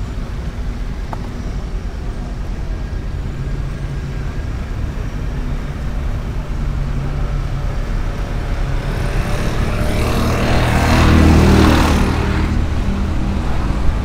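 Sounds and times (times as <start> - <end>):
low traffic rumble: 0.0 - 14.0
vehicle passing by: 3.4 - 14.0.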